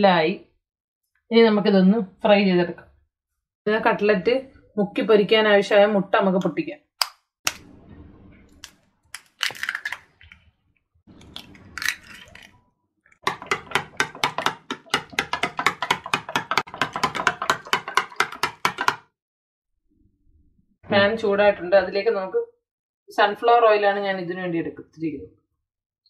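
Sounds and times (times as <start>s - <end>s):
eggs cracking on a bowl: 8.6s - 10.4s, 11.1s - 12.6s, 13.2s - 19.0s
spoon beating eggs in a bowl: 13.2s - 19.1s.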